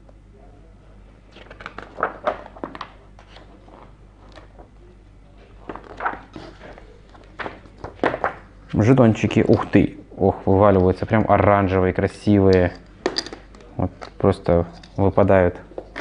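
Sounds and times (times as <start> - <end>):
cardboard pieces rustling and clicking: 5.7 - 8.4.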